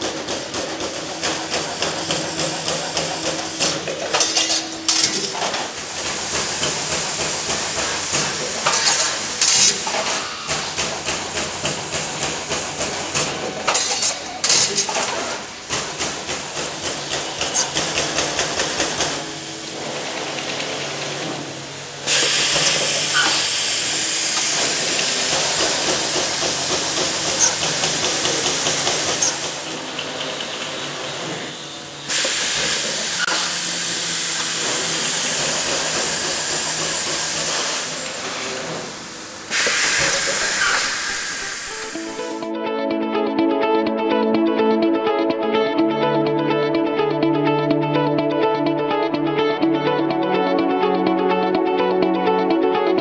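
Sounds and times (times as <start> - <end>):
steady hiss: 31.5 - 42.4.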